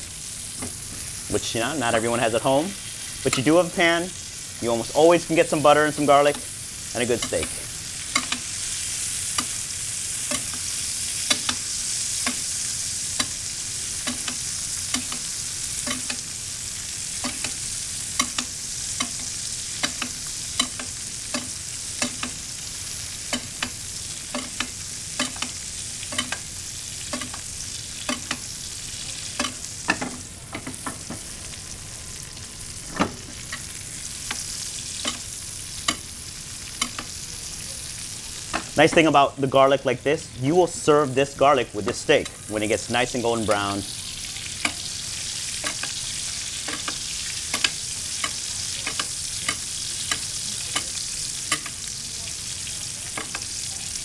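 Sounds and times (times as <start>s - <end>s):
steaks sizzling in a skillet: 0.0s - 54.0s
metal spoon clinking on pan: 23.3s - 26.5s, 46.6s - 51.8s.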